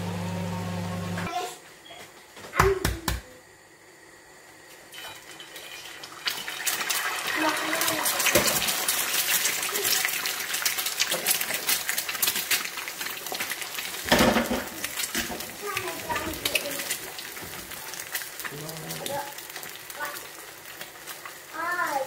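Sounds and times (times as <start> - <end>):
egg sizzling in frying pan: 4.9 - 22.0.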